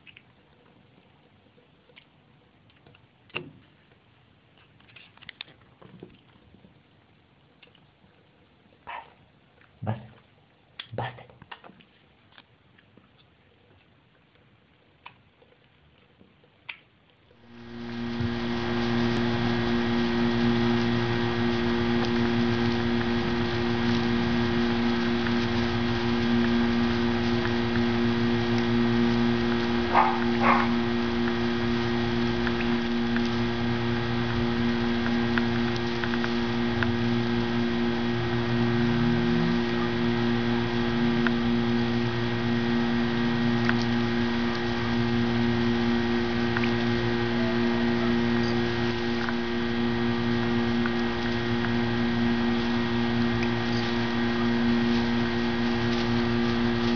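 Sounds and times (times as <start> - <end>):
machine hum: 17.3 - 56.9.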